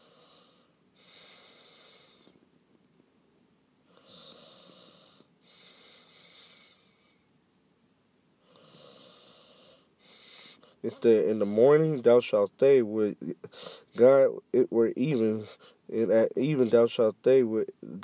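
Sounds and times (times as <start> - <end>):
faint breathing: 0.0 - 2.4, 3.8 - 7.4, 8.4 - 11.2, 13.3 - 14.0, 15.2 - 15.9.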